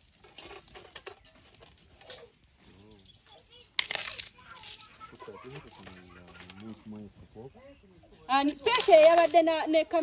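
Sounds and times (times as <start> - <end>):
faint talk: 2.7 - 8.2.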